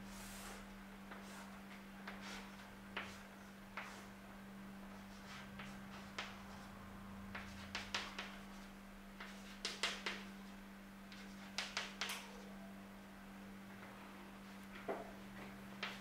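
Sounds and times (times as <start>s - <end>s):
steady low hum: 0.0s - 16.0s
chalk tapping on a blackboard: 0.4s - 4.1s, 4.9s - 6.7s, 7.3s - 10.3s, 11.1s - 12.1s.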